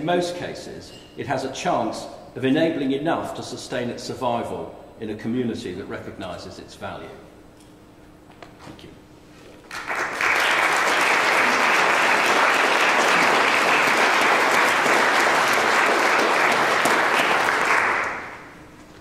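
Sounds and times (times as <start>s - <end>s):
audience applauding: 9.6s - 18.6s.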